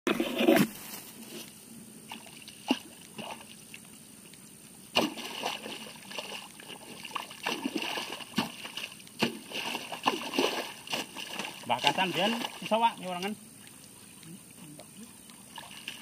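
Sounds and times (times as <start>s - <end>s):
mud squelching and splashing: 4.9s - 16.0s.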